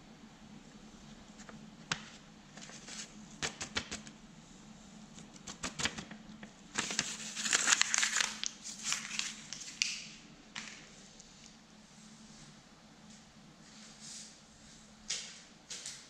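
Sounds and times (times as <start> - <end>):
paper crinkling: 1.4 - 4.1, 5.2 - 10.1.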